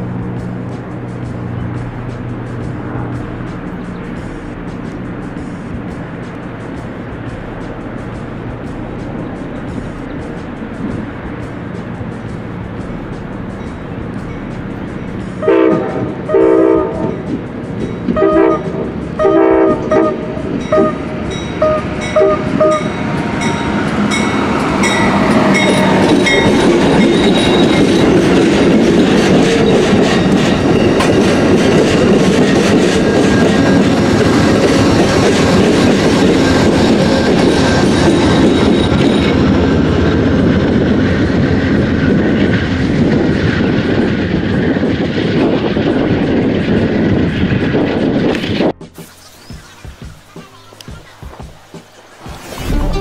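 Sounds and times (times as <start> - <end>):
passenger train rumbling past: 0.0 - 53.0
locomotive horn: 15.4 - 17.3, 18.1 - 26.5.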